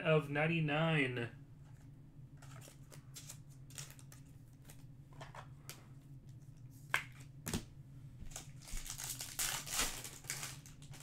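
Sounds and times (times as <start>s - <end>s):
card wrapper crinkling: 2.4s - 4.8s, 8.3s - 11.0s.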